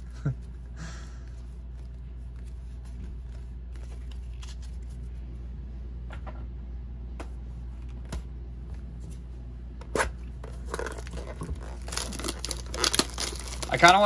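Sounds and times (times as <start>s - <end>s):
steady low hum: 0.0s - 14.0s
cards rustling and sliding: 1.3s - 5.2s.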